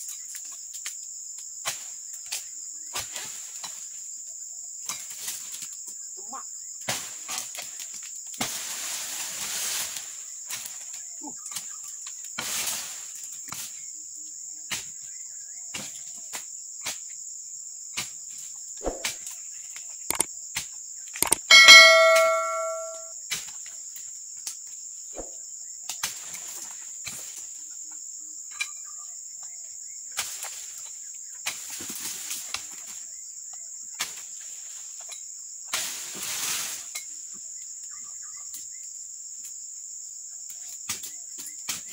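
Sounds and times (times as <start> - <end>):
metallic clang: 21.2 - 23.1.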